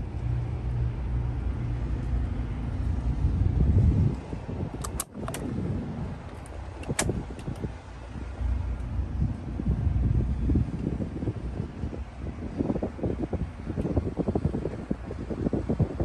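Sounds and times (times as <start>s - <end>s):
steady low rumble: 0.0s - 16.0s
latch click: 4.8s - 5.5s, 6.3s - 7.7s.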